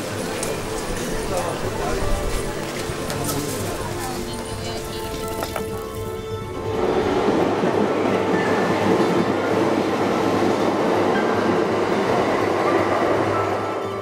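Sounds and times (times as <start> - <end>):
train wheels rushing on rails: 0.0 - 14.0.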